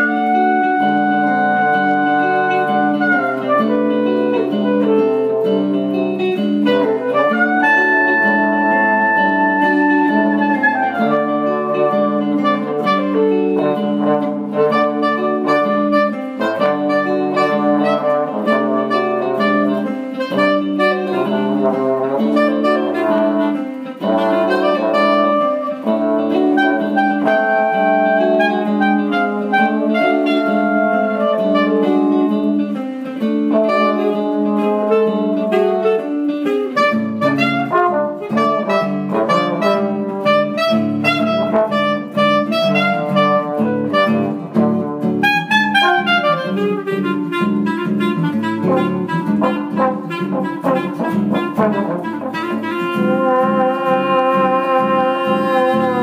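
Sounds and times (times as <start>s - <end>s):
acoustic guitar: 0.0s - 56.0s
clarinet: 0.0s - 56.0s
trombone: 0.0s - 56.0s.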